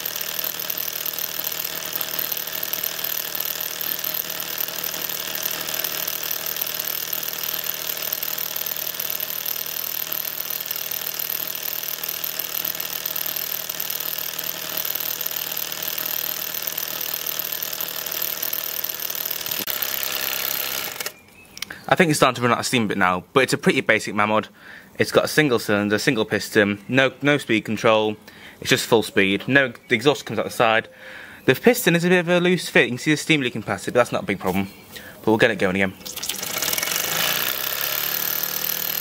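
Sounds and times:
toy steam engine chuffing: 0.0s - 21.2s, 36.0s - 39.0s.

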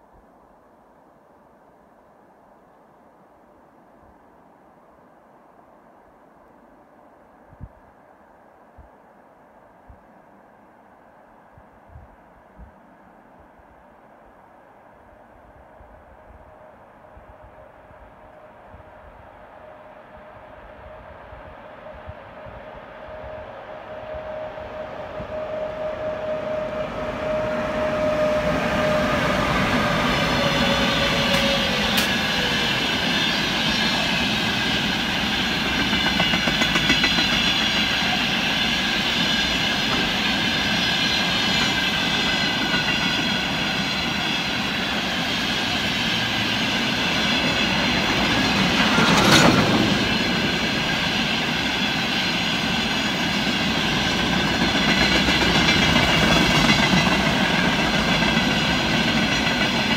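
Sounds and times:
locomotive tone sliding down: 17.9s - 59.9s
high-pitched wheel squeal: 21.9s - 34.2s
train wheels clattering over rail joints: 33.6s - 38.1s, 53.8s - 59.9s.

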